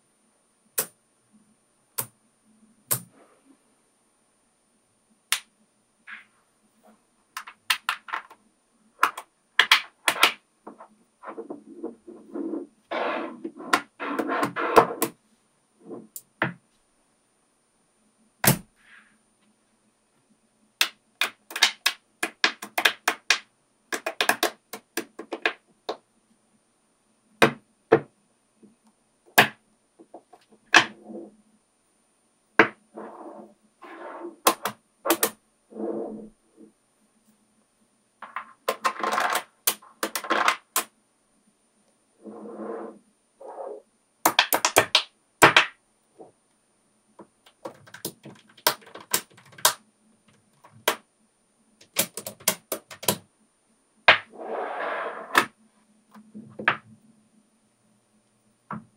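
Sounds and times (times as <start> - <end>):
magnetic balls clicking: 20.8 - 26.0, 38.2 - 40.9, 44.2 - 45.6, 47.4 - 51.0, 51.8 - 53.2.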